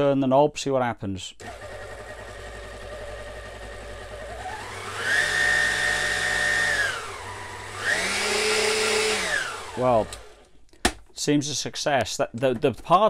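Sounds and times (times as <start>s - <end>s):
stand mixer motor whining: 1.4s - 10.5s.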